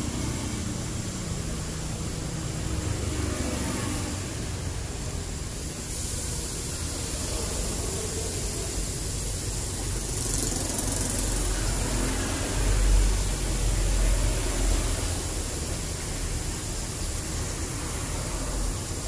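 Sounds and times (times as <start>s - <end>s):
vehicle passing: 0.0s - 5.6s, 9.7s - 19.0s
outdoor hiss: 0.0s - 19.0s.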